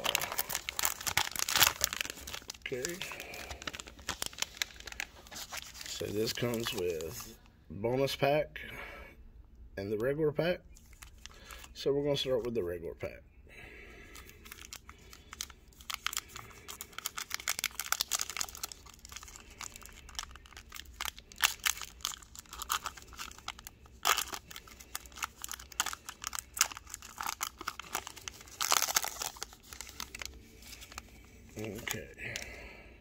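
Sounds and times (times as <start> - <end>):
foil wrapper tearing: 0.0 - 7.3, 14.2 - 32.4
foil wrapper crinkling: 0.0 - 7.4, 10.8 - 11.7, 14.1 - 32.5.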